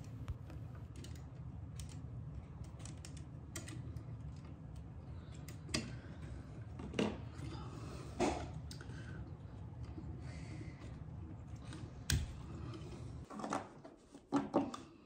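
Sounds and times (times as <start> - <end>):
low steady hum: 0.0 - 13.3.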